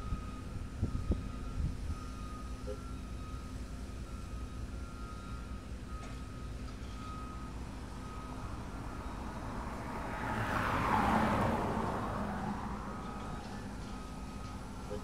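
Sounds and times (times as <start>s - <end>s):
vehicle engine rumbling: 0.0s - 15.0s
vehicle passing by: 7.2s - 15.0s.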